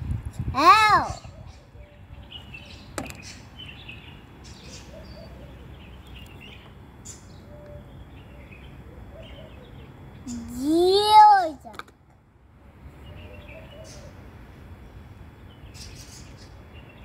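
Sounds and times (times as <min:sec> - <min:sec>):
distant bird chirps: 0:01.2 - 0:10.5, 0:12.9 - 0:17.0.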